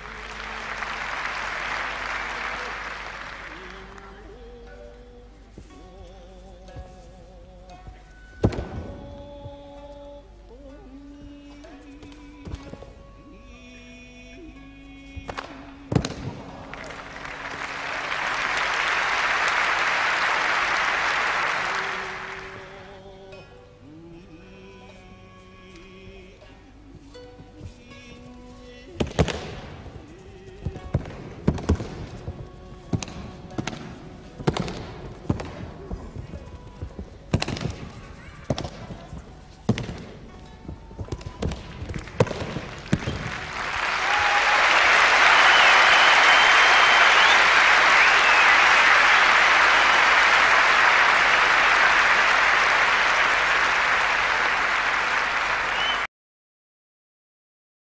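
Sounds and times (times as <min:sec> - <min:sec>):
audience applauding: 0:00.0 - 0:04.4, 0:16.1 - 0:23.0, 0:41.2 - 0:56.1
faint music: 0:00.0 - 0:56.1.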